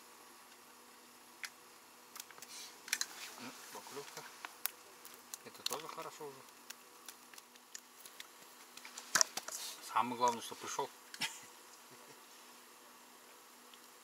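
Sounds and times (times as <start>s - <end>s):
faint buzzing hum: 0.0s - 14.0s
sharp small clicks: 1.4s - 3.1s, 4.0s - 9.6s.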